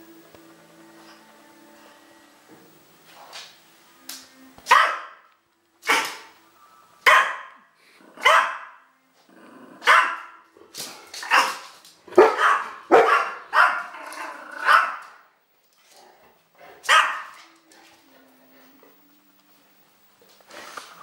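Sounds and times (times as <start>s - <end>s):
small dog barking: 4.7s - 5.2s, 7.0s - 7.6s, 8.2s - 8.8s, 9.8s - 10.4s, 11.3s - 11.6s, 12.2s - 13.9s, 14.6s - 15.2s, 16.8s - 17.4s.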